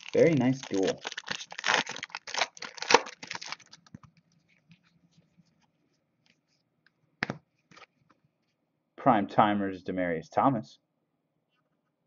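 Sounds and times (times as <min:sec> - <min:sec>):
foil wrapper crinkling: 0:00.0 - 0:04.1.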